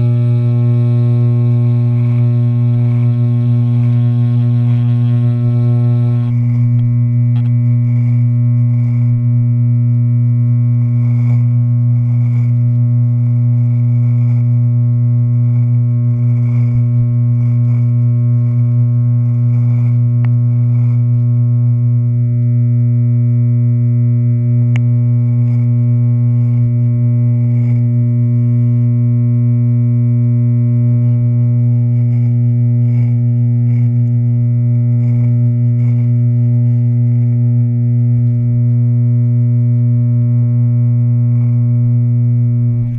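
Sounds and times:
electric hair clippers buzzing: 0.0 - 10.0, 24.6 - 38.6.

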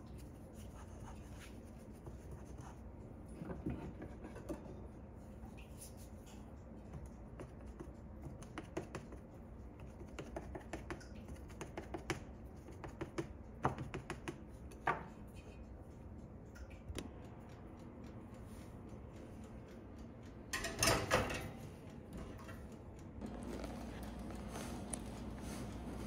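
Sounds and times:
knife tapping dough in metal pan: 7.5 - 15.2.

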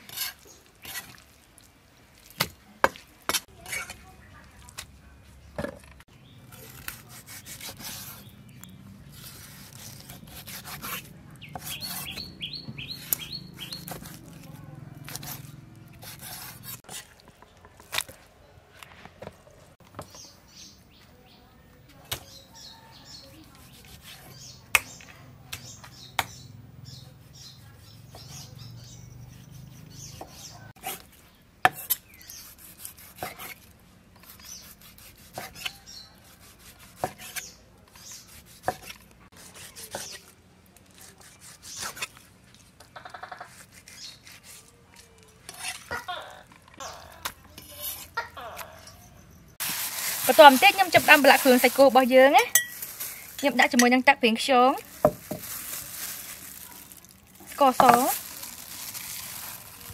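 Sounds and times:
birds chirping: 5.5 - 16.7, 19.4 - 32.7, 48.1 - 59.9.

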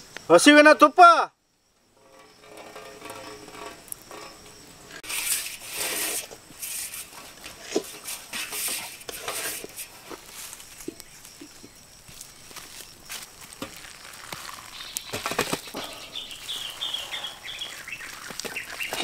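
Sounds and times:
spatula scraping a pan: 2.0 - 11.0.

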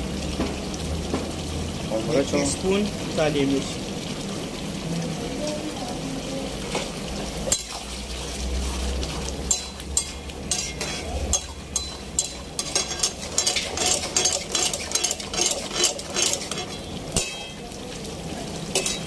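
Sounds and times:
curry bubbling and sizzling: 0.0 - 19.0
metal ladle scraping wok: 7.5 - 17.6, 18.7 - 19.0.

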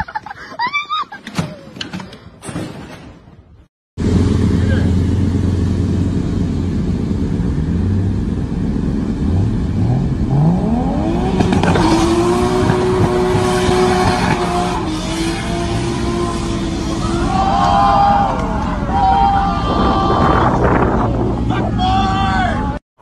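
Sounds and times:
car engine revving: 4.0 - 17.6
rushing tyre noise: 4.0 - 22.8.

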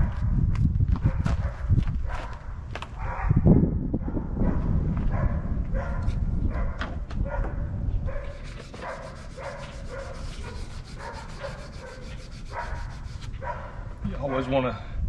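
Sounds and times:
dog barking: 1.0 - 14.5.

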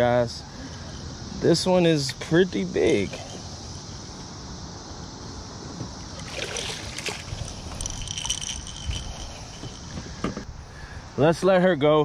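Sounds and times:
insects chirping: 0.0 - 11.8
steady background hiss: 0.0 - 12.0
soft rustles: 6.9 - 10.4.

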